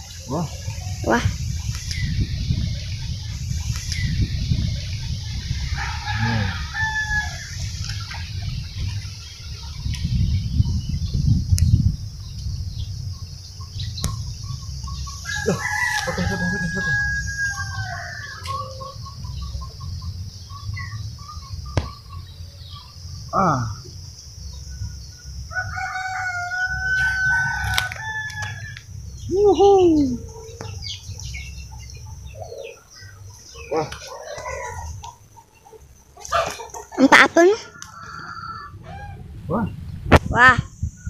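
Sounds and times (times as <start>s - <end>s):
low rumbling noise: 0.0s - 33.8s
rooster crowing: 5.6s - 7.6s, 15.2s - 19.0s, 25.5s - 28.8s, 34.0s - 35.0s, 37.6s - 39.3s.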